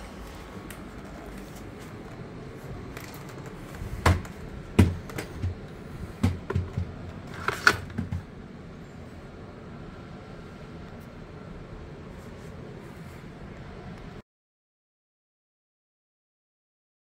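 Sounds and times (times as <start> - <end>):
hard plastic knocks and clunks: 3.8 - 8.3.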